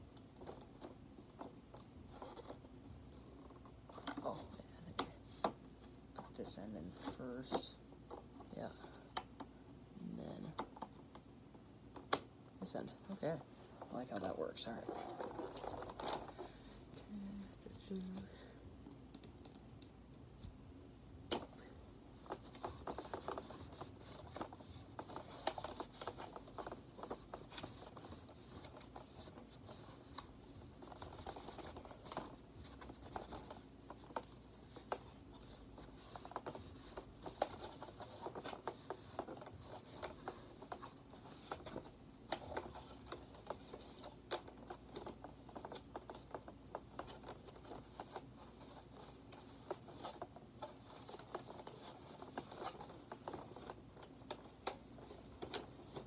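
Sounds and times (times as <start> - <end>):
cloth rubbing on plastic: 12.6 - 16.9, 21.6 - 56.0.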